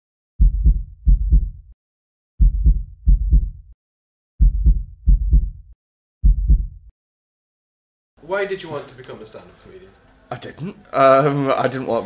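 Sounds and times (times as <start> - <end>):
heartbeat thumps: 0.4 - 1.8, 2.4 - 3.8, 4.4 - 6.9.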